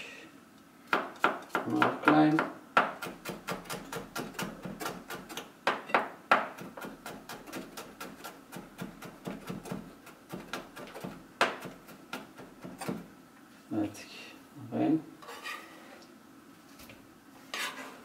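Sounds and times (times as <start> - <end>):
knife chopping on plastic board: 0.9 - 13.1.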